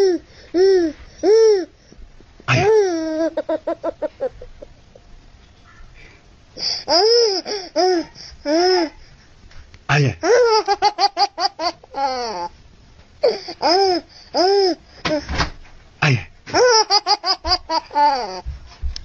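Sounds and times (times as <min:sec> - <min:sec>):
baby laughing: 0:02.5 - 0:04.8, 0:06.7 - 0:08.9, 0:10.2 - 0:12.6, 0:13.2 - 0:15.3, 0:16.5 - 0:18.5.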